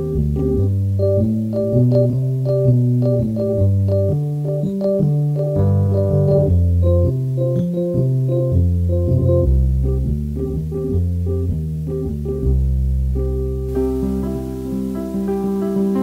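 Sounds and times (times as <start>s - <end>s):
higher synthesizer melody: 13.7s - 16.0s.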